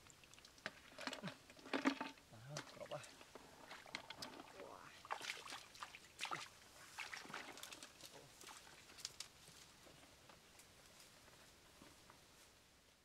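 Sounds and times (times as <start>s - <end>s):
splashes wading through water: 2.6s - 9.0s.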